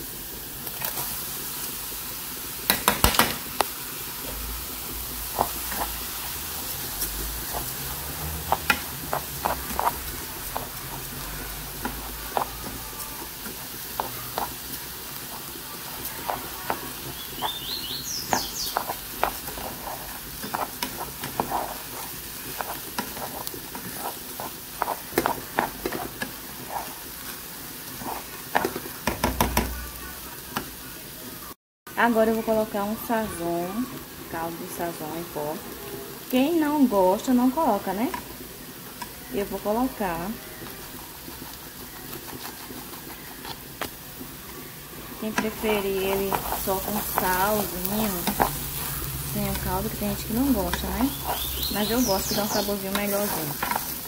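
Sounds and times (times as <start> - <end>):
rice and carrot sizzling: 0.0 - 54.0
wooden spoon scraping and knocking pan: 5.3 - 29.7, 41.2 - 44.0, 45.2 - 54.0.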